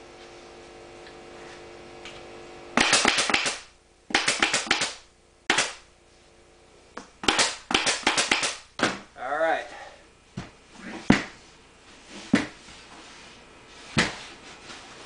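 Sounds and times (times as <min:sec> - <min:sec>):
low steady hum: 0:00.0 - 0:15.0
pneumatic staple gun shots: 0:02.8 - 0:05.8, 0:07.2 - 0:08.6.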